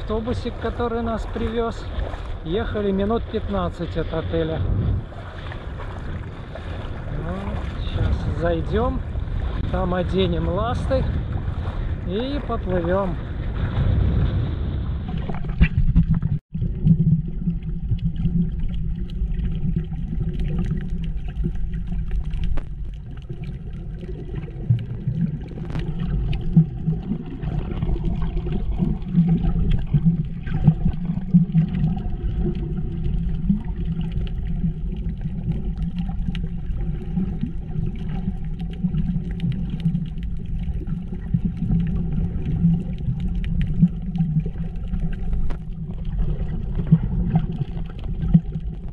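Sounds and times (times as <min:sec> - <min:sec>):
muffled underwater water rumble: 0:00.0 - 0:48.9
shallow water sloshing: 0:00.0 - 0:48.9
faint clicks and crackles: 0:15.1 - 0:48.9.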